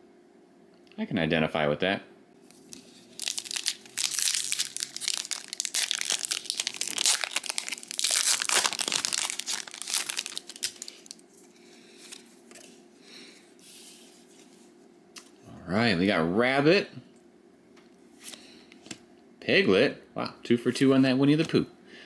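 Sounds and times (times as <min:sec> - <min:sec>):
foil wrapper crinkling and tearing: 0:02.5 - 0:11.2
cards rustling: 0:02.5 - 0:12.8.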